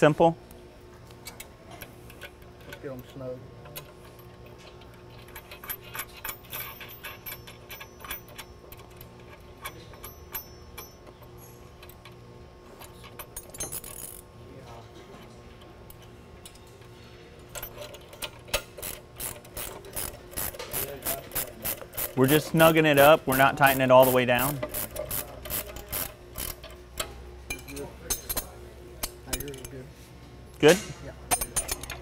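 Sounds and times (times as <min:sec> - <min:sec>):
metal bolts and nuts clinking: 0:03.7 - 0:12.1, 0:12.8 - 0:14.2, 0:17.4 - 0:29.8, 0:30.6 - 0:32.0
wrench clicking: 0:17.5 - 0:29.8, 0:31.3 - 0:32.0.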